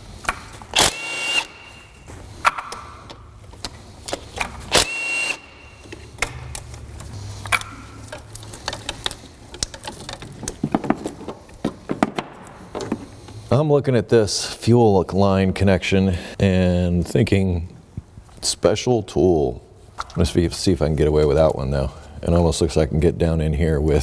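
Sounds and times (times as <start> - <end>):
cordless ratchet motor whine: 0.8 - 1.7, 4.7 - 5.6
clicks and knocks of tools: 5.8 - 13.4.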